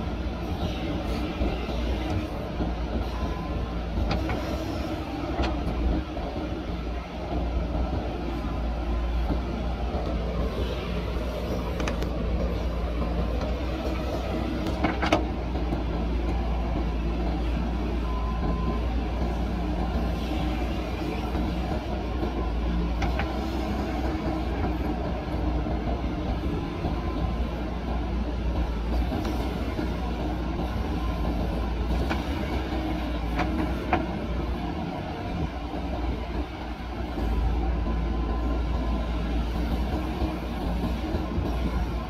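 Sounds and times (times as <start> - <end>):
diesel engine under hydraulic load: 0.0 - 42.0.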